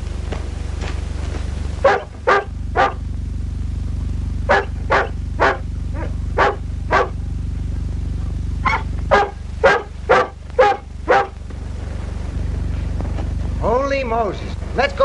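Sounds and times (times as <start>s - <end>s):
low film soundtrack hum: 0.0s - 15.0s
dog barking: 1.8s - 3.1s, 4.5s - 7.2s, 8.6s - 11.4s.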